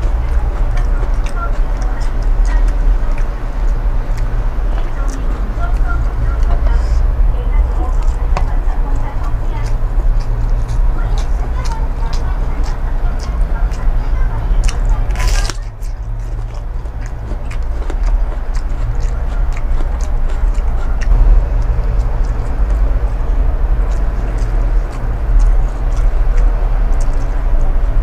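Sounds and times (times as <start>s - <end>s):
chewing mouth noises: 0.0s - 28.0s
low rumble: 0.0s - 28.0s
sharp crunch: 14.6s - 28.0s.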